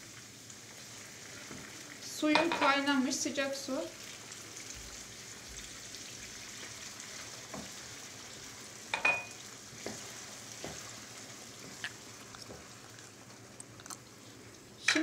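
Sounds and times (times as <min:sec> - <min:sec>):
rice and vegetables sizzling in pan: 0:00.0 - 0:15.0
wooden spatula knocking on pan: 0:02.3 - 0:02.7, 0:07.5 - 0:07.8, 0:10.6 - 0:10.8.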